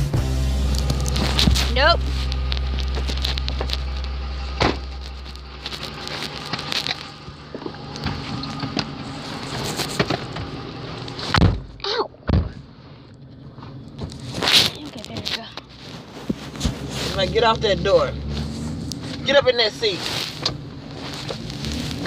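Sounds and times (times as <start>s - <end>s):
low steady hum: 0.0s - 22.0s
rustling and handling: 0.7s - 11.4s, 12.9s - 17.6s, 18.2s - 22.0s
car door thunks: 4.6s - 4.8s, 11.3s - 12.6s.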